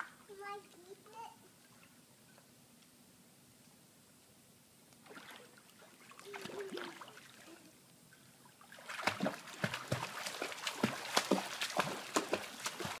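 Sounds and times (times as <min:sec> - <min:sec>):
pool water splashing: 0:05.0 - 0:13.0.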